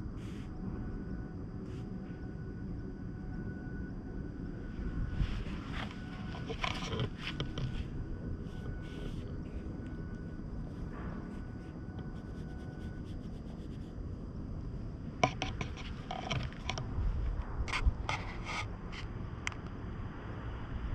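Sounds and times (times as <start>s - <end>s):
low wind rumble: 0.0s - 20.9s
rubbing and scraping on microphone: 5.2s - 9.6s, 10.7s - 14.0s, 15.2s - 16.9s, 17.7s - 19.1s
sharp clicks and rustles: 5.7s - 7.9s, 15.2s - 16.9s.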